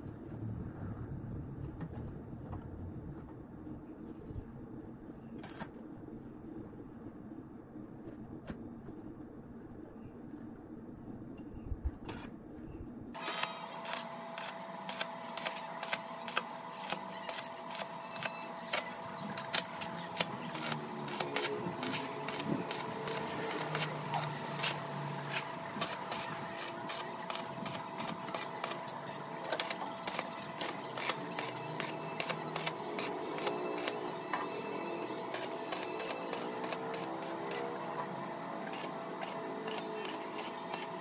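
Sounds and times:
steady hum: 0.0 - 41.0
welding arc crackling: 13.2 - 41.0.

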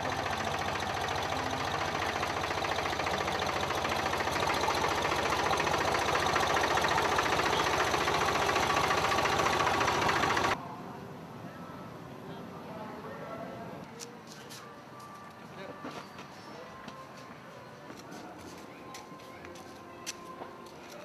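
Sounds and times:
tractor engine running: 0.0 - 10.6.

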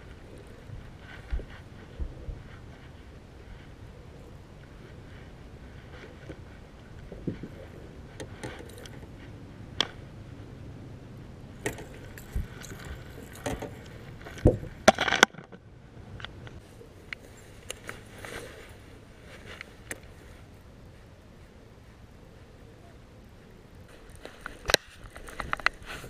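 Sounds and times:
hooks and rod clattering: 11.6 - 15.5.

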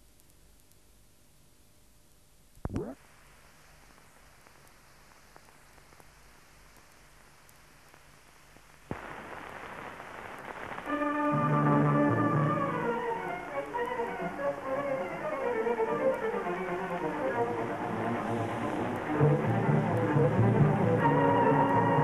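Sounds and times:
faint hiss: 0.0 - 22.0
film soundtrack surface noise: 0.0 - 22.0
click: 0.1 - 0.8.

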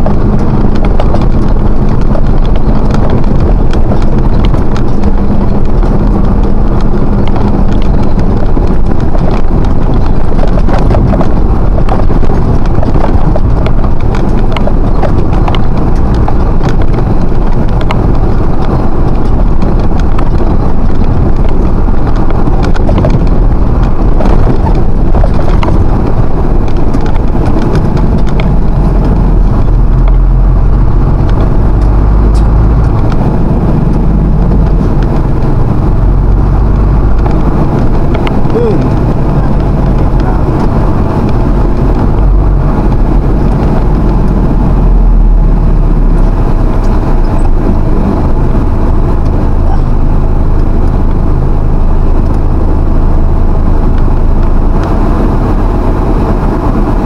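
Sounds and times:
rattling clatter: 0.0 - 44.6
vehicle engine and road rumble: 0.0 - 57.0.

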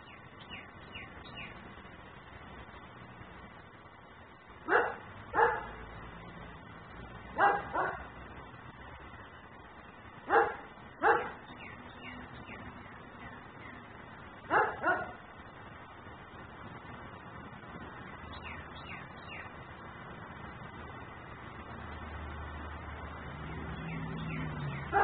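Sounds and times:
dog barking: 4.7 - 5.8, 7.4 - 8.1, 10.3 - 11.4, 14.5 - 15.2.

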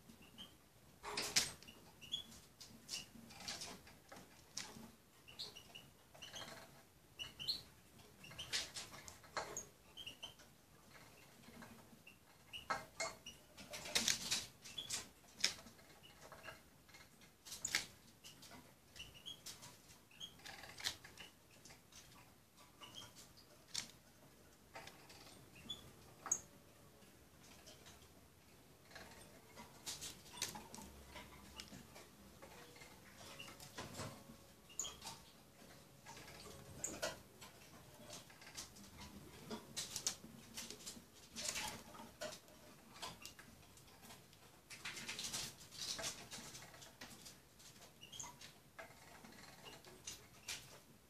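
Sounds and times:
bird chirping: 0.1 - 0.6, 1.3 - 3.2, 5.2 - 11.4, 14.6 - 15.1, 17.6 - 23.8, 24.7 - 26.6, 28.9 - 39.6.

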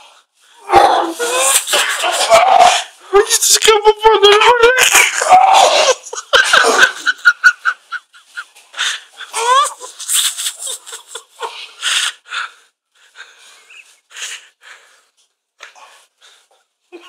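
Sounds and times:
man retching and gagging: 0.6 - 3.0, 4.4 - 7.1.

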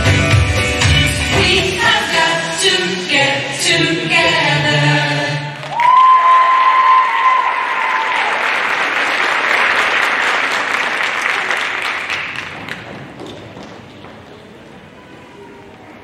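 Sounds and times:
audience applauding: 5.6 - 13.3.

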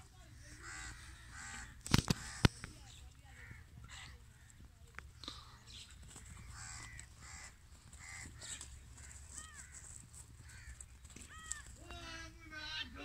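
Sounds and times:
crows cawing: 0.4 - 2.6, 3.2 - 4.7, 5.3 - 13.0.

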